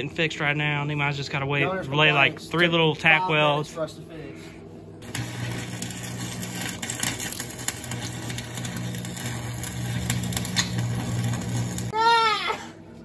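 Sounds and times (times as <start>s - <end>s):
steady low hum: 0.0s - 12.0s
arc welder crackling and popping: 5.0s - 12.0s.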